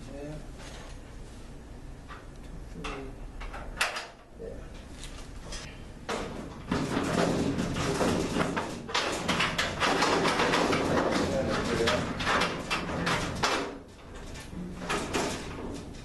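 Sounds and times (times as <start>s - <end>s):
metal knocks and scrapes: 5.5s - 16.0s.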